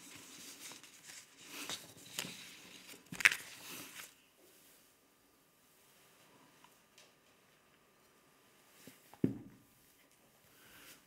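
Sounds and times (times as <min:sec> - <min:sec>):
paper rustling: 0:00.0 - 0:04.3.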